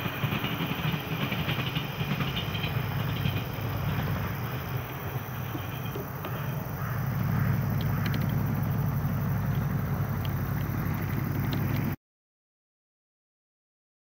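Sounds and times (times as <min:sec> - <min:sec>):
distant vehicle rumble: 0:00.0 - 0:12.0
faint ticks: 0:07.7 - 0:08.5, 0:09.4 - 0:12.0.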